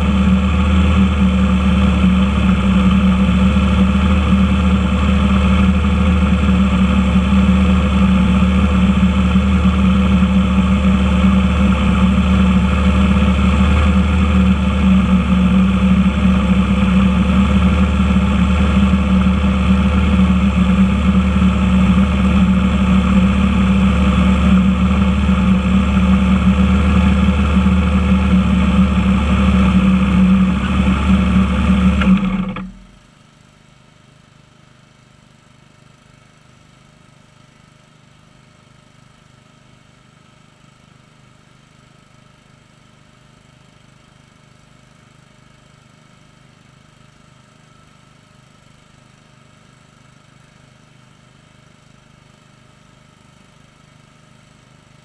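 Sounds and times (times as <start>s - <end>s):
engine idling: 0.0s - 33.1s.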